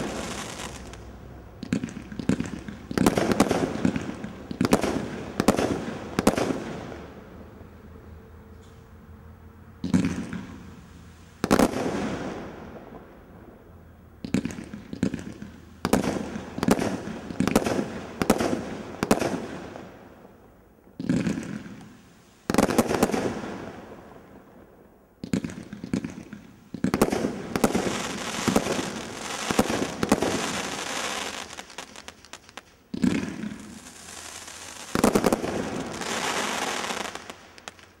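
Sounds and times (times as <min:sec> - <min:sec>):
crackling of bursting stars: 0:00.0 - 0:06.6, 0:25.3 - 0:38.0.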